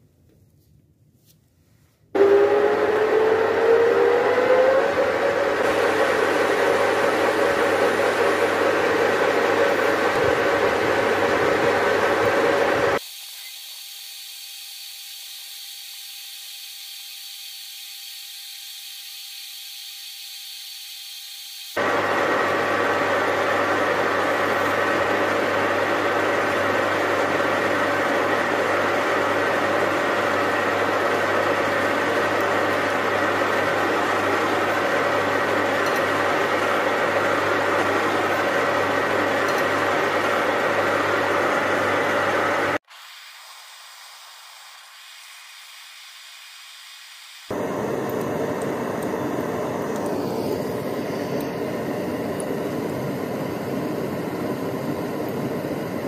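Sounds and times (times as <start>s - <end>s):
lathe motor humming: 2.2s - 13.0s, 21.8s - 42.8s, 47.5s - 56.0s
gas torch flame hissing: 21.7s - 56.0s.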